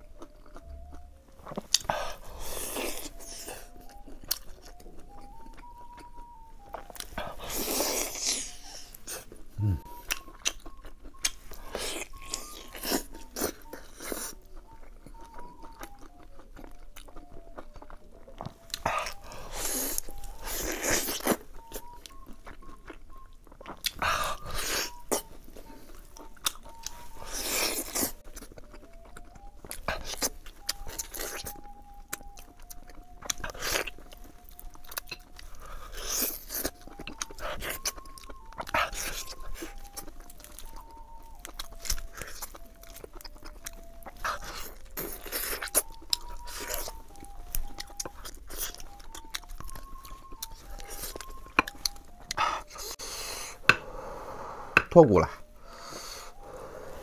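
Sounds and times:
faint background tune: 0.0s - 57.0s
man chewing meat: 0.0s - 57.0s.

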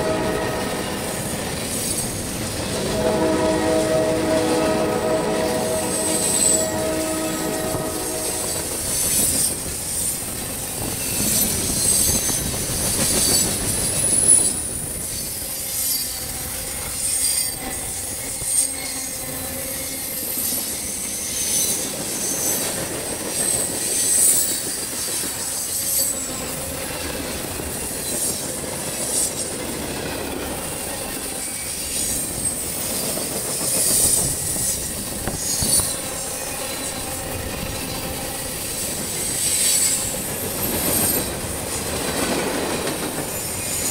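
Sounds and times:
rumble of wheels on rail: 0.0s - 43.9s
high-pitched wheel squeals: 3.0s - 9.6s, 33.9s - 41.3s.

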